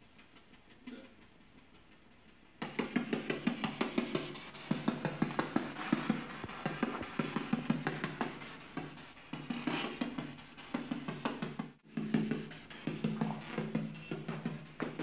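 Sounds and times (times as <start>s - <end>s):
choppy radio bursts: 2.6s - 10.0s, 12.6s - 15.0s.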